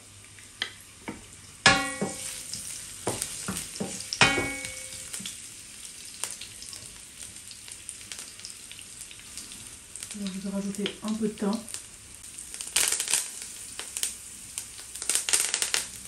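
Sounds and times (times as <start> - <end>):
garlic sizzling in oil: 0.0 - 16.0
spatula knocking ringing wok: 1.6 - 5.2.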